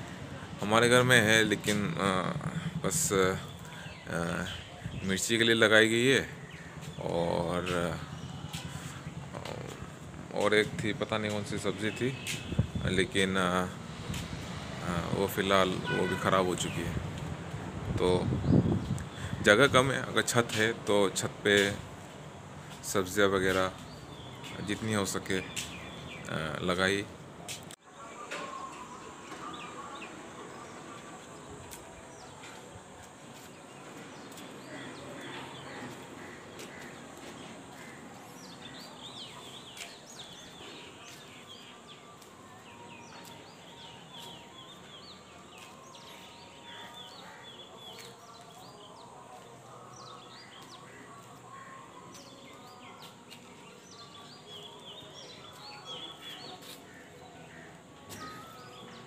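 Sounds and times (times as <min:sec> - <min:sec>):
distant outdoor noise: 0:00.0 - 0:59.0
small birds chirping: 0:00.0 - 0:59.0.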